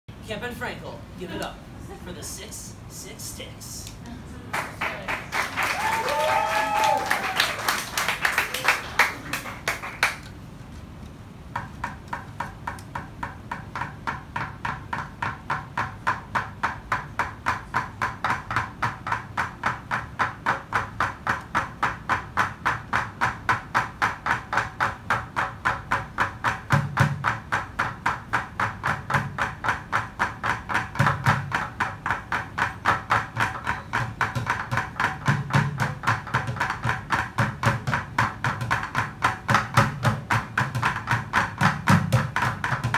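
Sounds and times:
applause: 4.5s - 10.3s
drumsticks on plastic buckets: 11.0s - 42.9s.

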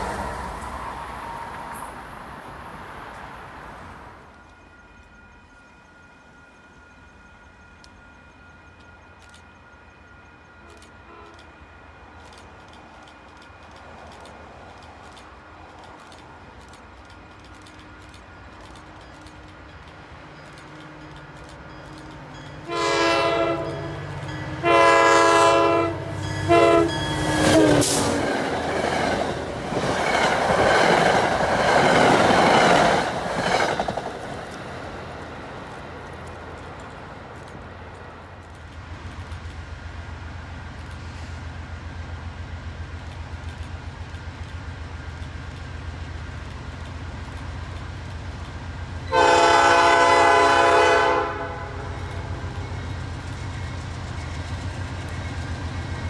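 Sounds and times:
train horn blasts: 0.0s - 2.2s, 8.0s - 12.1s, 21.7s - 28.2s, 49.1s - 52.5s
pulsing rumble of diesel locomotives: 0.0s - 56.0s.

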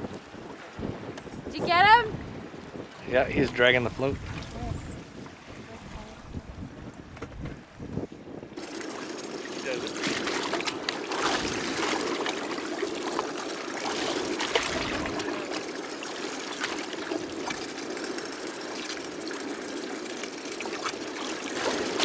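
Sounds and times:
water lapping against boat: 0.0s - 22.0s
small sharp splashes: 8.6s - 17.8s, 20.5s - 22.0s.

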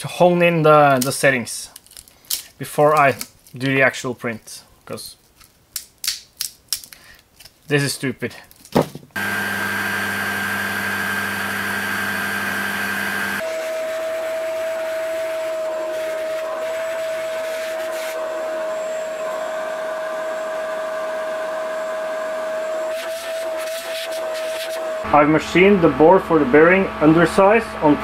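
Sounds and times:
end mill cutting metal: 9.2s - 13.5s, 24.8s - 28.0s
motor whine: 9.2s - 23.6s, 24.2s - 28.0s.

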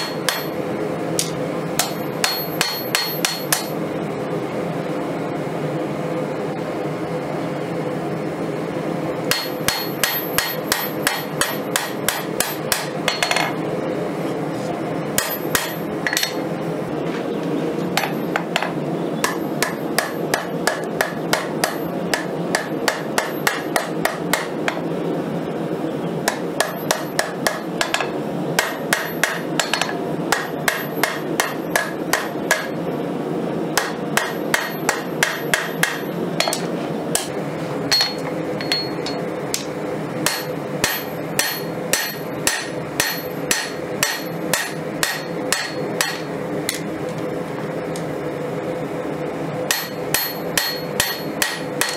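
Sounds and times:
hammer striking ringing anvil: 0.0s - 0.6s, 1.2s - 3.8s, 9.3s - 13.5s, 15.2s - 16.4s, 26.3s - 32.7s, 33.8s - 36.6s, 37.9s - 39.3s, 40.2s - 46.3s, 49.7s - 51.9s.

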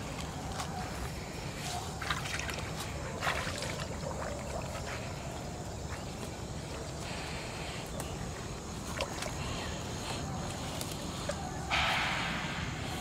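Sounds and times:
muddy water sloshing: 0.0s - 11.8s
steady low rumble: 9.8s - 13.0s.

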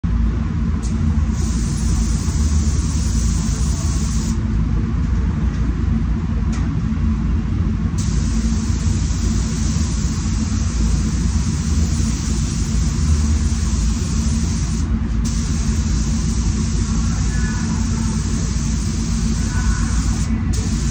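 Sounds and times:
ventilation rumble: 0.0s - 20.9s
spray gun hissing: 1.3s - 4.4s, 8.0s - 20.9s.

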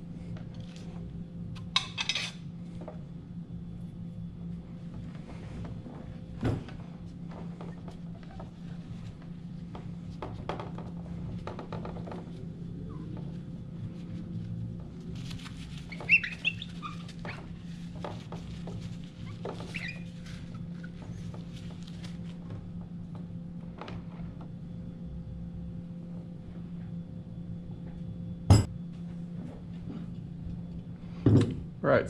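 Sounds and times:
steady low hum: 0.0s - 32.0s
short high squeaks: 19.3s - 21.0s.

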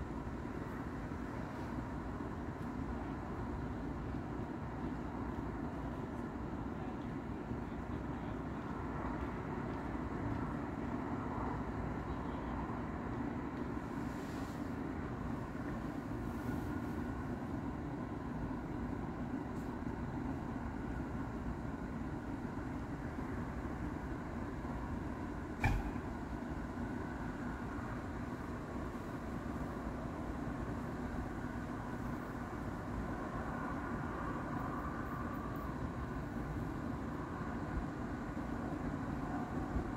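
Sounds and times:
faint steady hum: 0.0s - 39.9s
low street rumble: 0.0s - 39.9s
faint hiss: 13.8s - 17.5s.

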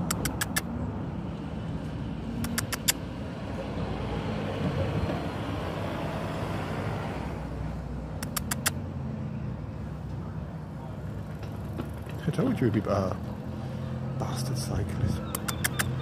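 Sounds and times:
sharp ticks: 0.0s - 0.7s, 2.4s - 3.0s, 8.2s - 8.8s, 15.3s - 16.0s
vehicle passing: 0.0s - 16.0s.

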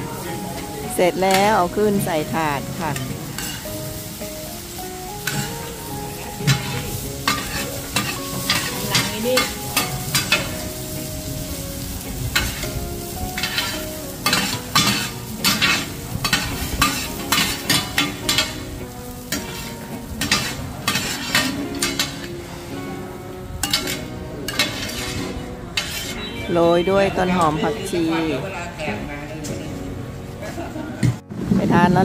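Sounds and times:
oil sizzling: 0.0s - 28.8s
metal spatulas scraping pan: 2.9s - 3.9s, 5.2s - 5.7s, 6.4s - 10.8s, 13.4s - 18.7s, 19.3s - 22.3s, 23.6s - 26.5s.

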